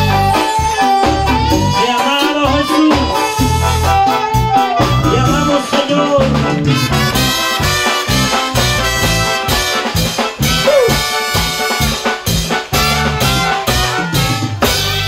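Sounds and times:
bass and drums: 0:00.0 - 0:15.0
saxophone: 0:00.0 - 0:15.0
person singing: 0:01.6 - 0:03.3, 0:05.0 - 0:06.4, 0:10.6 - 0:11.2.

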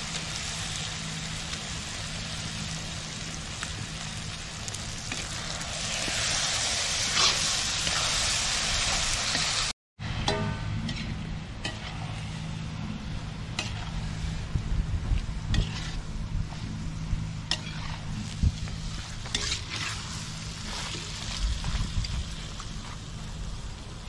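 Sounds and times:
meat sizzling in a pan: 0:00.0 - 0:09.7, 0:17.5 - 0:22.6
metal spatula scraping a pan: 0:10.8 - 0:13.0, 0:13.6 - 0:14.0, 0:15.5 - 0:16.7, 0:17.5 - 0:18.3, 0:19.3 - 0:21.1.

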